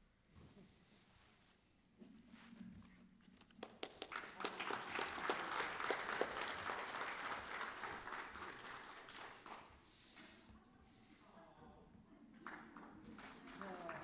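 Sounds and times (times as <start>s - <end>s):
audience applauding: 3.6s - 9.8s, 12.4s - 14.0s.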